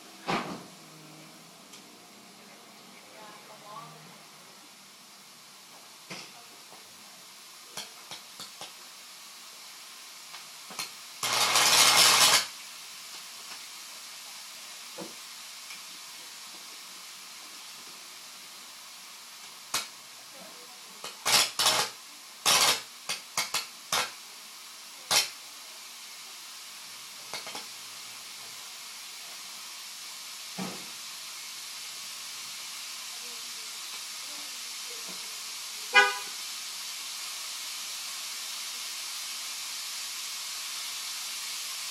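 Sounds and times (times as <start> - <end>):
faint hiss: 0.0 - 41.9
electric arc buzzing and cracking: 7.6 - 16.7, 19.0 - 20.4, 21.0 - 41.9.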